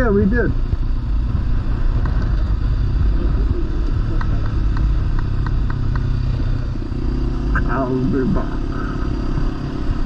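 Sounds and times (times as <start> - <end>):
wind noise: 0.0 - 7.4
motorcycle engine running: 0.0 - 10.0
light ticks: 4.1 - 6.2.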